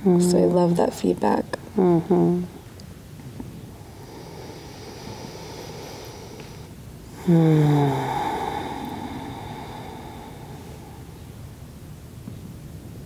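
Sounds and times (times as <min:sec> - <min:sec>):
soft breathing: 0:03.4 - 0:11.7
long voiced sigh: 0:07.2 - 0:11.2.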